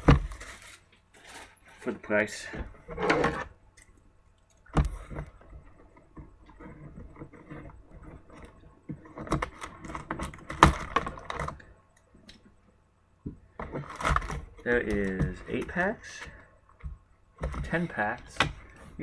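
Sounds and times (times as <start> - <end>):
packaging rustling and crinkling: 0.0 - 2.2.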